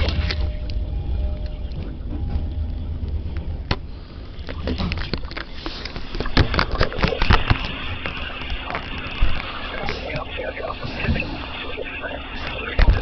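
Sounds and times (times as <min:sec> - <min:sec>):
low steady rumble: 0:00.0 - 0:05.4.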